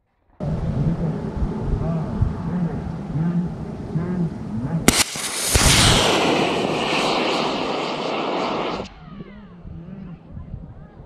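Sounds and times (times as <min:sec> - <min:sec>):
rocket motor igniting crack: 0:04.9 - 0:08.9
rocket hissing roar: 0:04.9 - 0:09.0.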